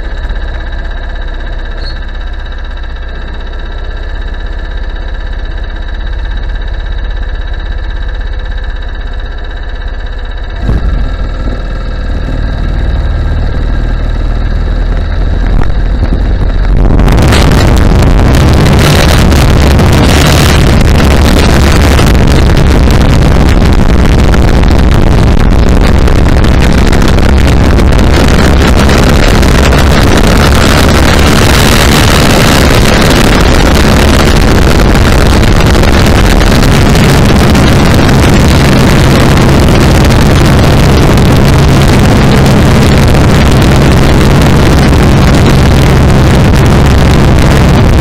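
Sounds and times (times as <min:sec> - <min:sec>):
go-kart engine running: 0:00.0 - 0:48.0
wind buffeting microphone: 0:10.6 - 0:48.0.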